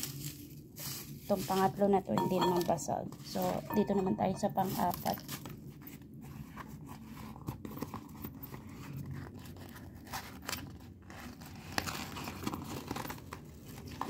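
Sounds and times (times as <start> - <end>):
packing tape peeled and torn: 0.0 - 1.2, 9.1 - 14.0.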